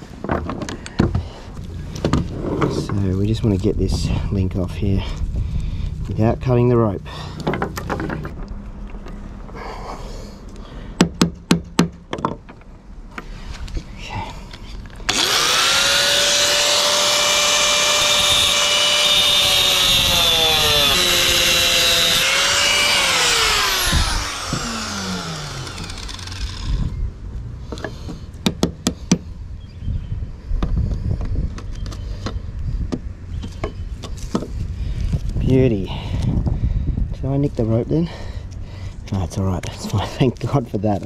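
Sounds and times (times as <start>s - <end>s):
angle grinder whining: 15.1s - 27.0s.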